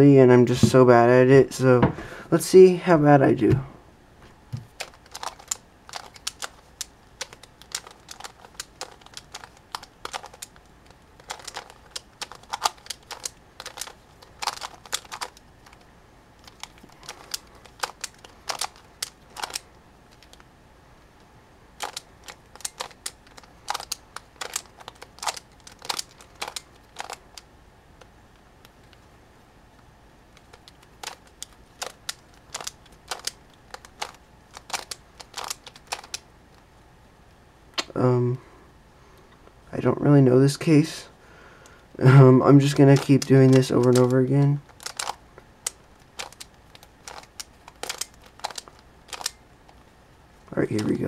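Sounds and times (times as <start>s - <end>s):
puzzle cube clicking as turned: 4.6s - 15.8s, 16.4s - 20.4s, 21.8s - 27.5s, 30.3s - 36.6s, 42.6s - 49.8s.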